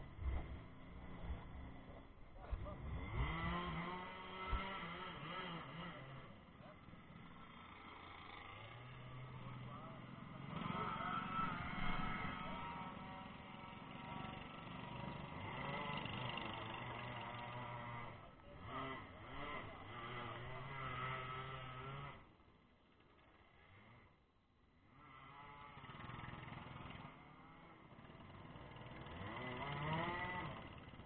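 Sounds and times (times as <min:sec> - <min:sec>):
go-kart engines idling: 0:00.0 - 0:31.0.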